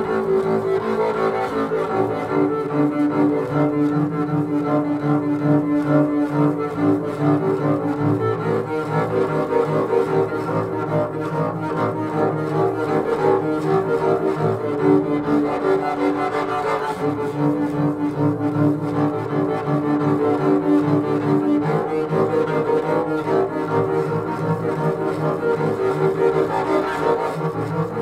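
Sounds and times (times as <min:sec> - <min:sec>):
bowed double bass drone: 0:00.0 - 0:28.0.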